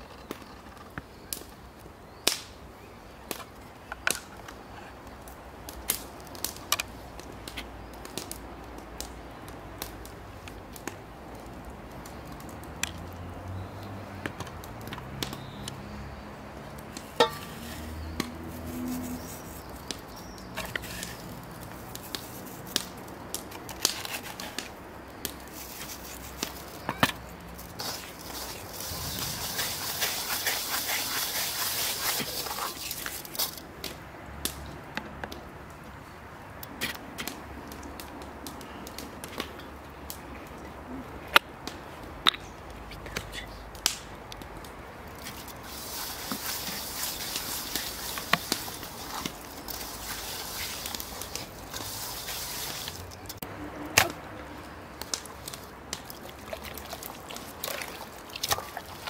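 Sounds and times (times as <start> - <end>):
hiss: 27.8 - 32.8, 45.6 - 53.0.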